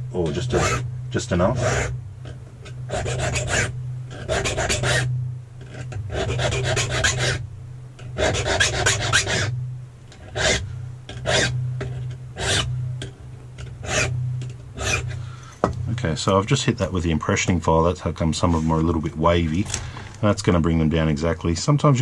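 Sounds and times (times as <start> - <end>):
low hum: 0.0 - 22.0
file rasping across key: 0.2 - 7.4, 8.1 - 9.6, 10.2 - 12.7, 13.6 - 14.2, 14.8 - 15.3.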